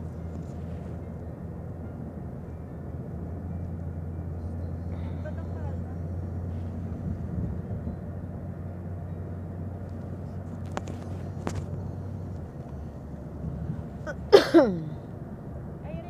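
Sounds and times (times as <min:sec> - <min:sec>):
engine and road drone: 0:00.0 - 0:16.0.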